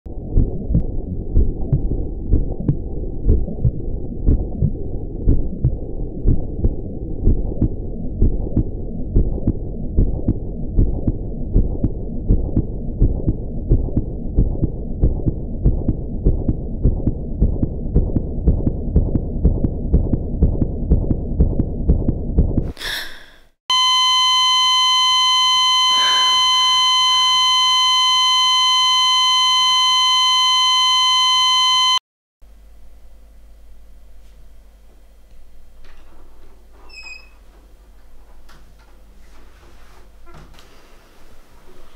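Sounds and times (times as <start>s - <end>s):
heartbeat thumps: 0.1s - 22.8s
steady high electronic tone: 23.7s - 32.0s.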